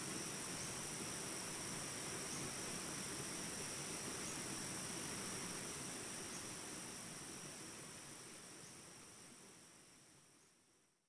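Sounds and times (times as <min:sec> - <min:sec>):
crickets chirping: 0:00.0 - 0:10.7
soft forest hiss: 0:00.0 - 0:11.0.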